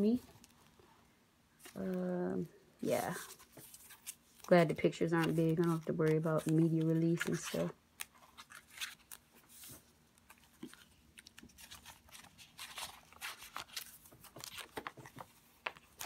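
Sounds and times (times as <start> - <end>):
paper pages rustling and flicking: 3.0 - 16.0.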